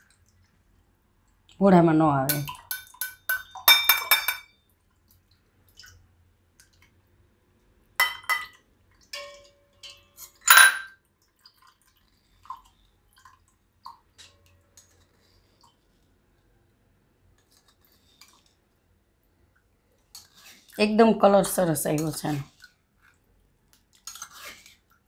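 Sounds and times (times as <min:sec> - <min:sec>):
ladle clinking against steel bowl: 0:02.3 - 0:04.5, 0:09.2 - 0:11.0.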